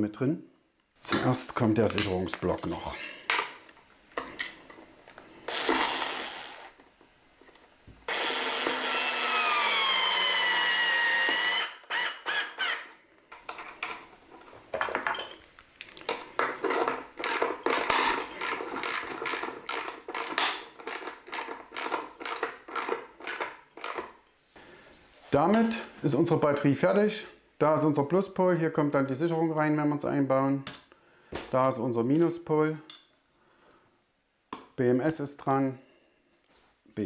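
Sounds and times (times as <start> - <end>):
cordless screwdriver driving screws: 5.5 - 6.7.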